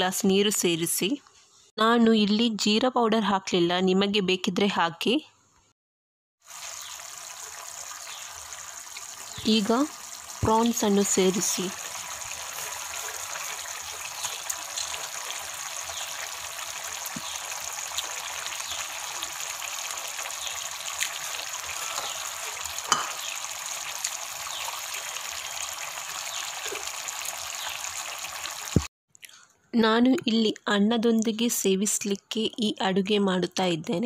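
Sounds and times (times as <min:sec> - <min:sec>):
gravy sizzling and bubbling: 0:06.4 - 0:28.9
spoon tapping pan: 0:22.9 - 0:23.4.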